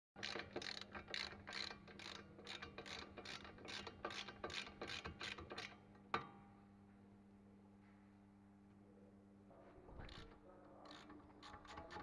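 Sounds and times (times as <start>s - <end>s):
ratchet wrench clicking: 0.2s - 5.4s.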